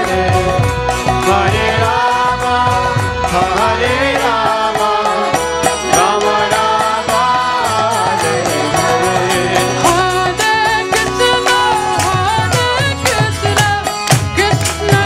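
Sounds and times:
instrumental accompaniment: 0:00.0 - 0:15.0
steady percussion rhythm: 0:00.0 - 0:15.0
voices chanting: 0:01.2 - 0:12.1.

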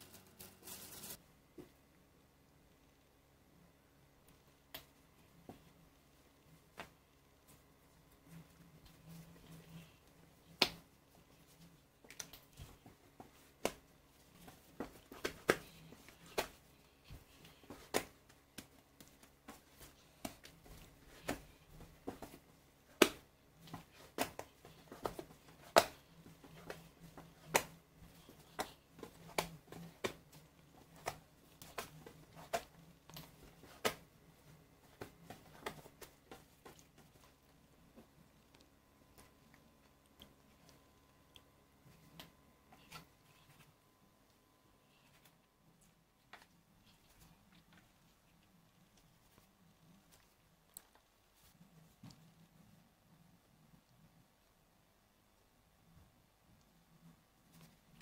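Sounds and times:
fingers pressing sticky dough: 0:12.0 - 0:41.5.

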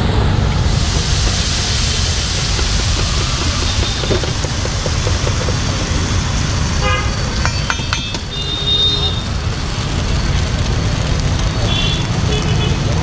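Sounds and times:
low rumble: 0:00.0 - 0:08.4
water sizzling on hot griddle: 0:00.6 - 0:13.0.

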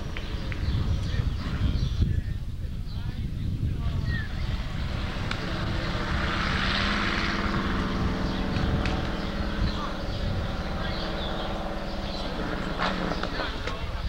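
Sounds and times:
engine droning: 0:00.0 - 0:02.0, 0:03.4 - 0:14.0.

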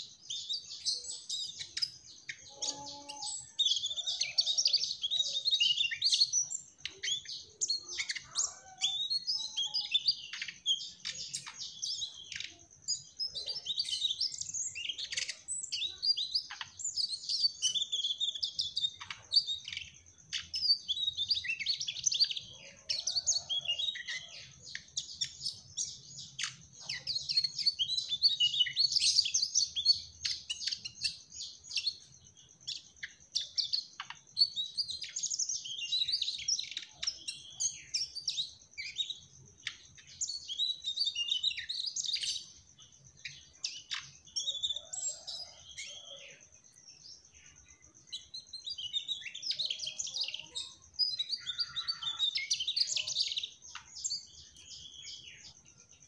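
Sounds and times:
flycatcher singing chirps and trills: 0:00.0 - 0:56.0.

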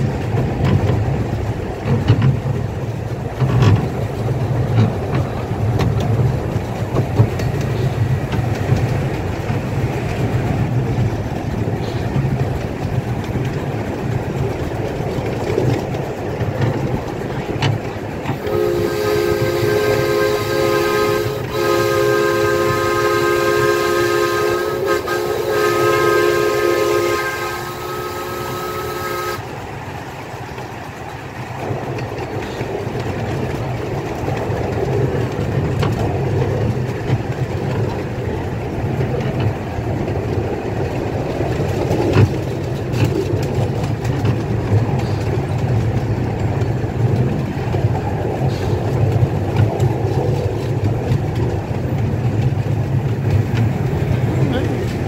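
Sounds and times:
train wheels rumbling: 0:00.0 - 0:55.0
wheels clicking over rail joints: 0:00.0 - 0:55.0
steam whistle chord: 0:18.4 - 0:29.4.

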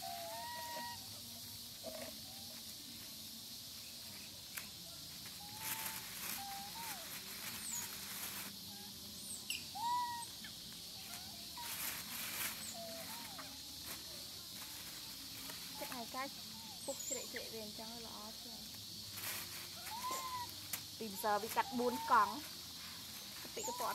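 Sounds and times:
whistled animal calls: 0:00.0 - 0:02.5, 0:05.4 - 0:07.9, 0:08.7 - 0:11.8, 0:12.6 - 0:13.7, 0:19.8 - 0:20.5, 0:21.1 - 0:22.5, 0:23.6 - 0:23.9
steady high hiss: 0:00.0 - 0:23.9.

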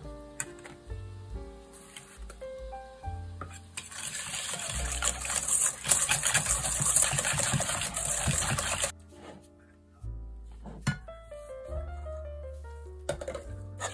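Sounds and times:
whisk beating in metal bowl: 0:03.8 - 0:08.9.

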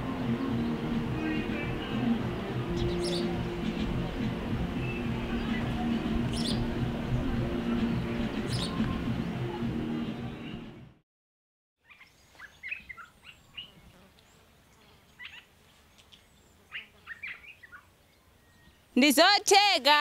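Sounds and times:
intro music: 0:00.0 - 0:11.0.

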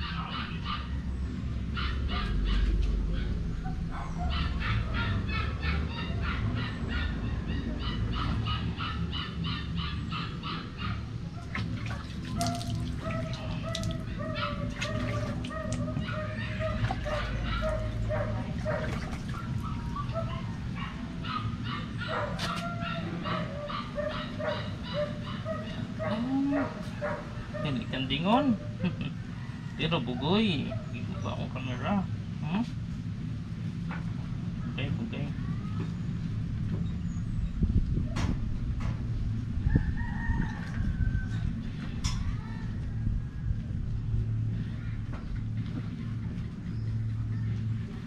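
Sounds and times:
puppy whimpering and yipping: 0:01.8 - 0:11.5, 0:12.3 - 0:27.9
water splashing: 0:11.5 - 0:15.9.

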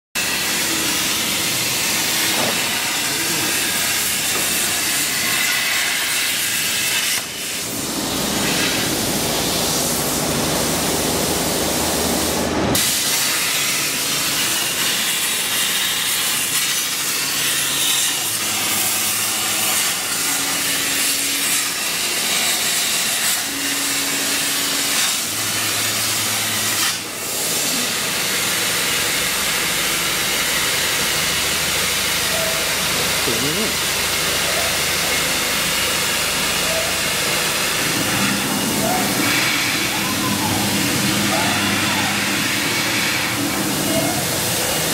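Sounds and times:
plasma torch hissing: 0:00.2 - 0:44.9.

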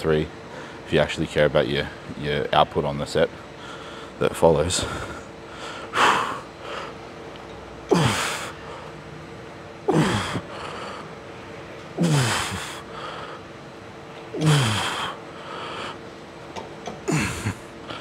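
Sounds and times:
faint steady hum: 0:00.0 - 0:18.0
man grunting exhales: 0:12.0 - 0:12.8, 0:14.4 - 0:15.2.

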